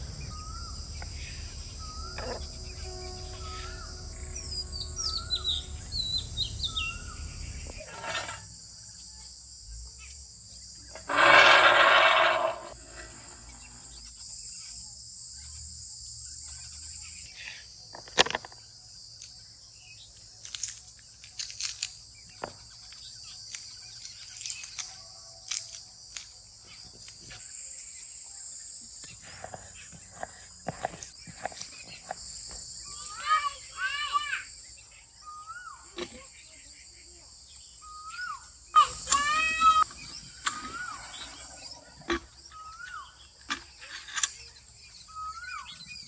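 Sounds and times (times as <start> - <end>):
high buzz of insects: 0.2 - 16.6.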